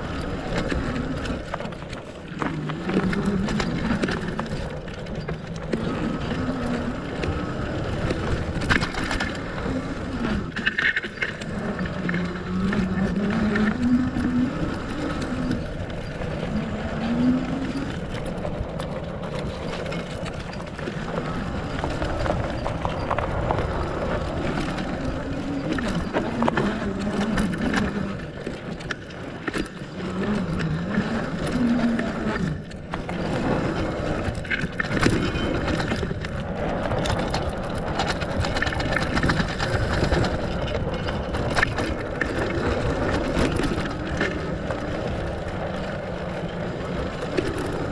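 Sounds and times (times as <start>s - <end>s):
rattles and knocks from bumps: 0.0s - 46.0s
bike tyres rumbling on dirt: 0.0s - 47.9s.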